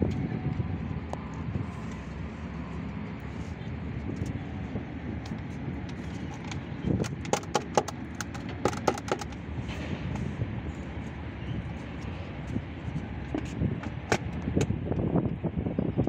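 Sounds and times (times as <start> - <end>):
plastic cover clicks and knocks: 6.4 - 9.4.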